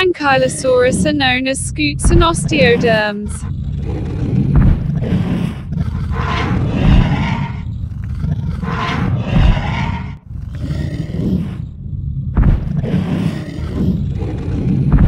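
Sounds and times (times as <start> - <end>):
low rumble: 0.0 - 10.6, 13.9 - 15.0
dinosaur roars: 0.0 - 15.0.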